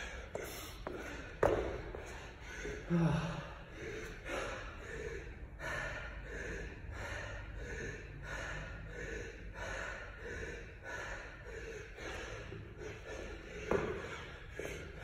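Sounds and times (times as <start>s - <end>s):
man panting heavily: 0.0s - 15.0s.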